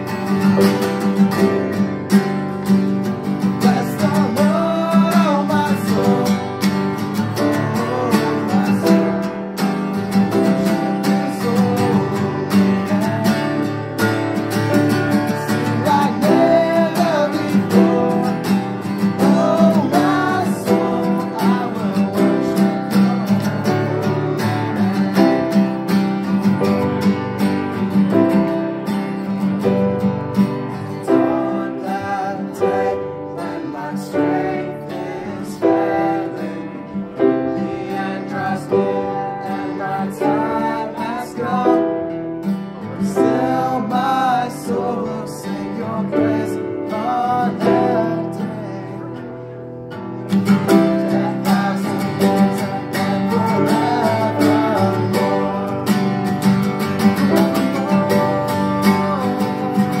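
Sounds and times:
acoustic guitars strumming: 0:00.0 - 1:00.0
piano: 0:00.0 - 1:00.0
men singing: 0:03.4 - 0:09.6, 0:10.2 - 0:25.8, 0:30.9 - 0:42.3, 0:43.0 - 0:49.3, 0:50.5 - 1:00.0.

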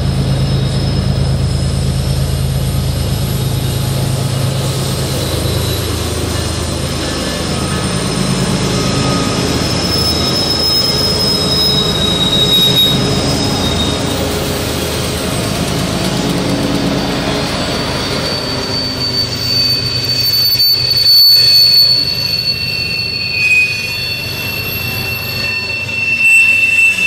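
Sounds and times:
diesel locomotive engine drone: 0:00.0 - 0:27.0
wheel flange squeal: 0:00.0 - 0:27.0.

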